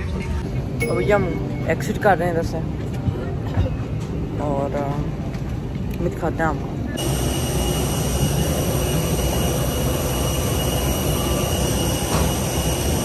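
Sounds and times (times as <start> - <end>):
jet engine rumble and whine: 0.0 - 13.0.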